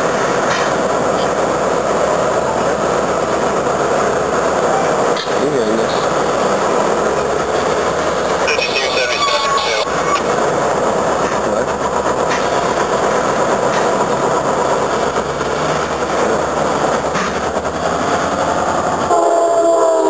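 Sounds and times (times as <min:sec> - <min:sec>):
wheels rolling on rails: 0:00.0 - 0:19.1
diesel locomotive engine running: 0:00.0 - 0:20.0.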